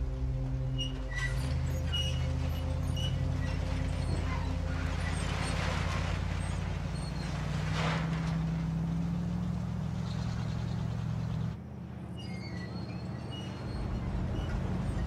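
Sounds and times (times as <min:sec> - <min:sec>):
car engine droning: 0:00.0 - 0:15.0.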